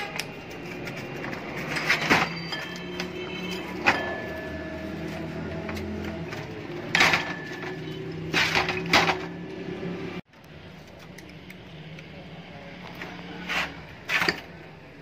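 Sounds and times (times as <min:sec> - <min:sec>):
metal parts knocking and clunking: 0:00.0 - 0:04.6, 0:05.6 - 0:09.5, 0:14.0 - 0:14.6.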